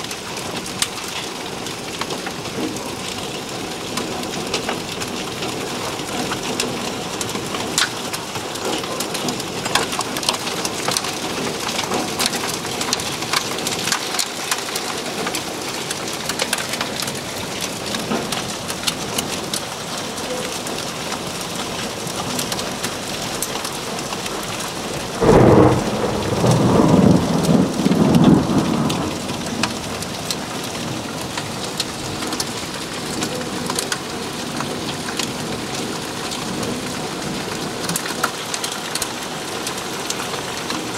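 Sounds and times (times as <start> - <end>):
heavy rain and hail: 0.0 - 40.9
thunder clap rumbling: 25.1 - 32.2.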